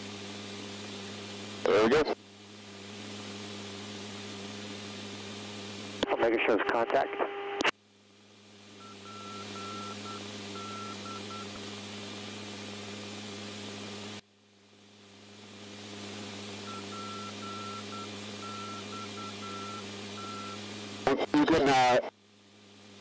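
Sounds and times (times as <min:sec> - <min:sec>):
low electrical hum: 0:00.0 - 0:23.0
radio hiss: 0:01.5 - 0:02.2, 0:05.6 - 0:07.7, 0:15.9 - 0:22.2
short and long beeps: 0:08.8 - 0:11.5, 0:16.6 - 0:20.6.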